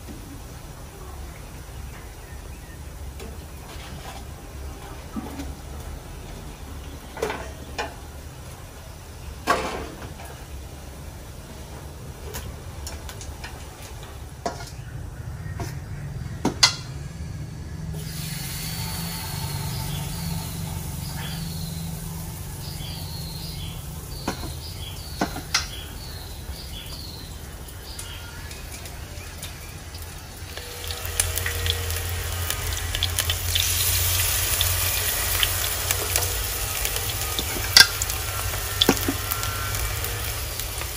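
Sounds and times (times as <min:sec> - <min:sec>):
batter sizzling in hot oil: 0:18.0 - 0:40.9.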